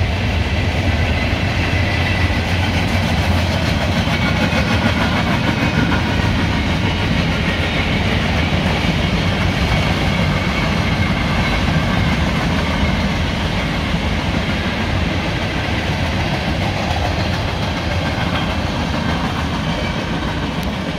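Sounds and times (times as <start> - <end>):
freight train wheels rumbling: 0.0 - 20.9.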